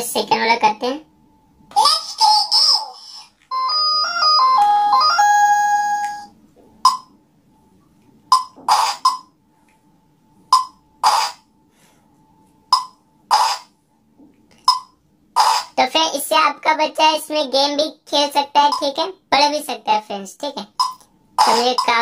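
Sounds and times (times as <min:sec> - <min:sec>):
faint steady whine: 0:00.0 - 0:22.0
beeping melody: 0:03.5 - 0:06.3.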